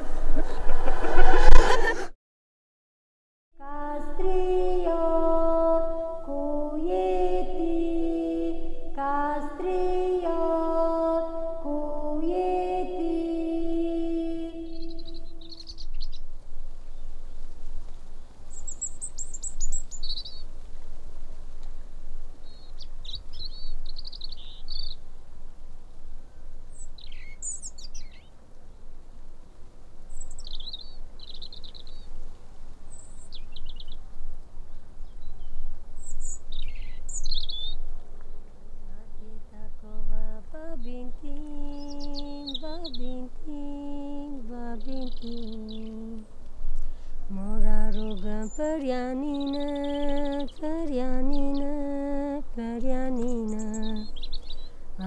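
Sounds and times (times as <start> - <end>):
slow melody: 3.6 - 15.5
small birds chirping: 12.1 - 20.8, 22.4 - 25.1, 26.3 - 28.3, 30.1 - 34.1, 34.7 - 38.0, 39.0 - 54.8.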